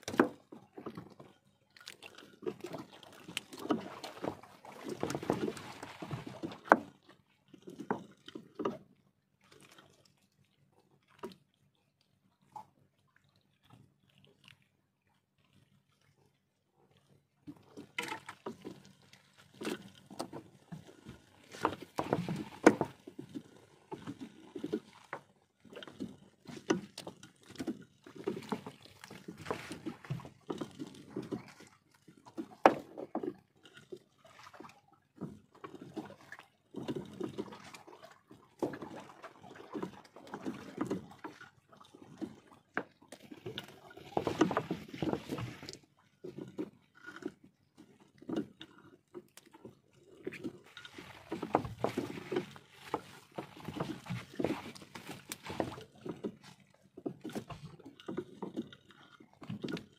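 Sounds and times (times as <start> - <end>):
water dripping and splashing: 18.0 - 33.4, 50.2 - 58.8
wet net rustling: 50.7 - 56.6.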